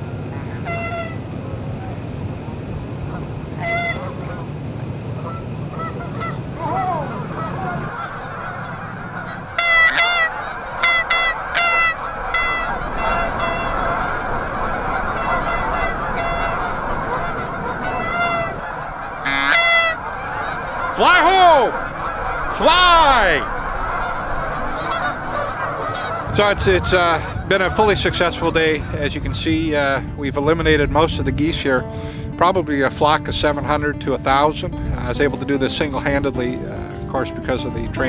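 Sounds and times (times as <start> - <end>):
close goose honks: 0.0 - 2.1, 3.0 - 30.0
flock of geese honking: 0.0 - 38.0.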